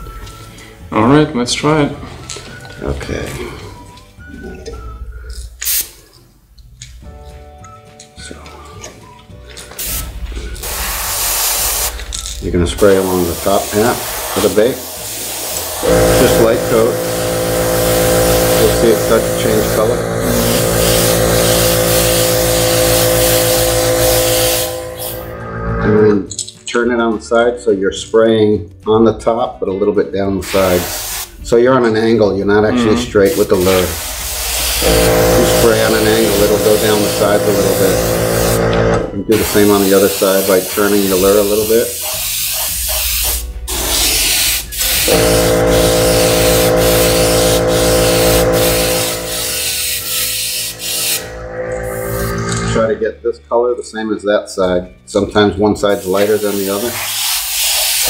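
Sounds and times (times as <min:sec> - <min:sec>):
airbrush spraying hiss: 0:05.6 - 0:06.0, 0:09.8 - 0:12.1, 0:12.8 - 0:25.3, 0:30.4 - 0:31.4, 0:33.2 - 0:38.6, 0:39.3 - 0:51.3, 0:55.9 - 0:58.0
small compressor humming: 0:14.1 - 0:25.8, 0:34.0 - 0:39.1, 0:45.0 - 0:52.8.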